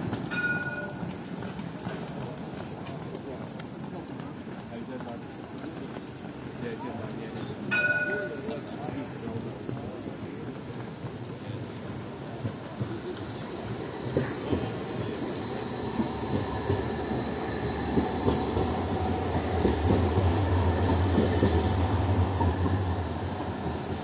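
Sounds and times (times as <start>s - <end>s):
street hum: 0.0s - 24.0s
tram rumbling past: 0.0s - 24.0s.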